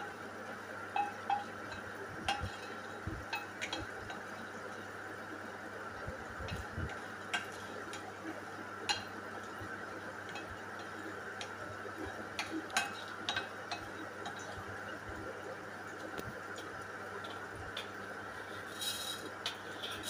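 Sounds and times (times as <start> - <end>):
spatula ticks and clicks in pan: 0.9 - 5.4, 6.4 - 15.0
oil hissing: 18.3 - 20.0.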